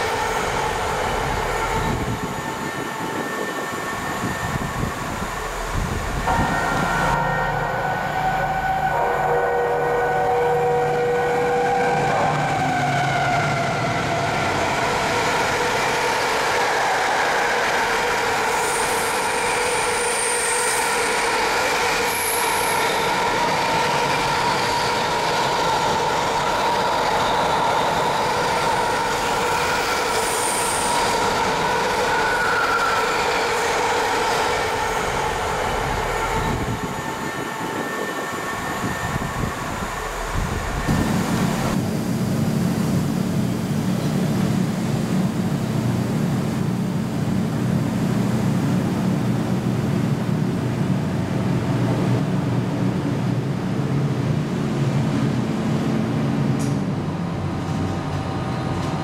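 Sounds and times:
high-pitched train squeals: 0.0s - 41.8s
train running by: 0.0s - 59.0s.

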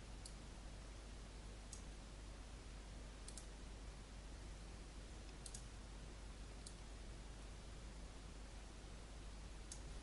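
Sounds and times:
steady hiss and low hum: 0.0s - 10.0s
computer mouse clicks: 0.2s - 0.4s, 1.7s - 1.9s, 3.2s - 3.5s, 5.2s - 5.7s, 6.6s - 6.8s, 9.7s - 9.9s.

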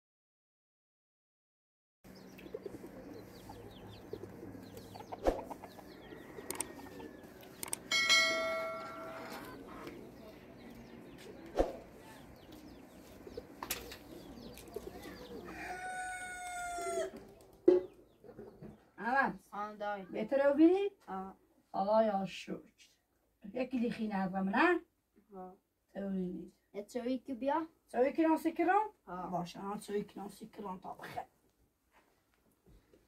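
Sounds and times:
rooster crowing: 5.8s - 7.6s, 8.6s - 9.8s, 15.3s - 17.2s
bell-like ringing tone: 7.9s - 9.5s.

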